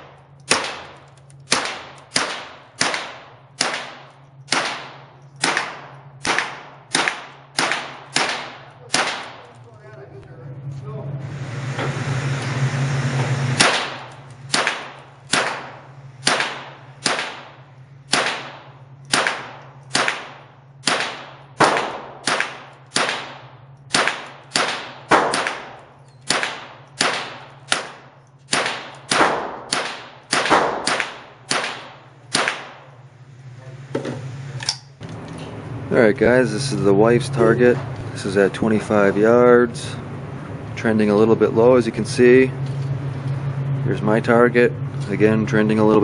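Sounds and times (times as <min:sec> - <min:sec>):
rifle shots echoing indoors: 0:00.0 - 0:09.6, 0:13.6 - 0:33.0.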